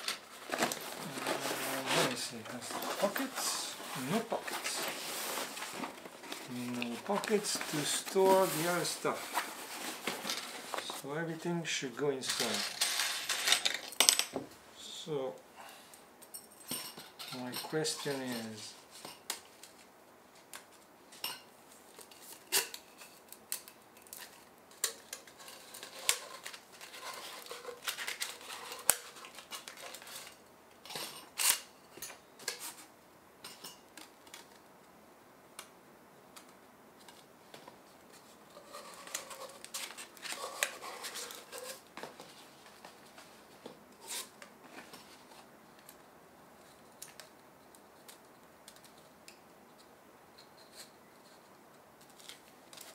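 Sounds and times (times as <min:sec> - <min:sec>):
bag rustling: 0:00.0 - 0:11.0.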